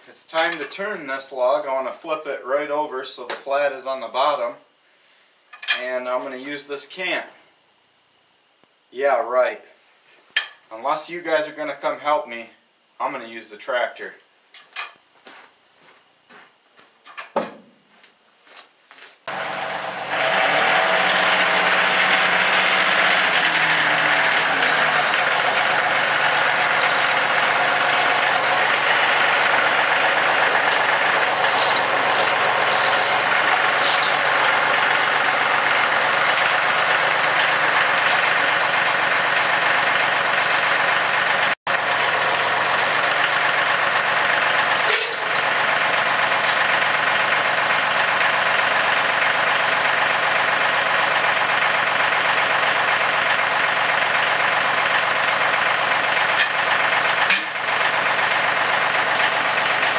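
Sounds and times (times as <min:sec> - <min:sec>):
tractor diesel engine running: 0:19.3 - 0:59.9.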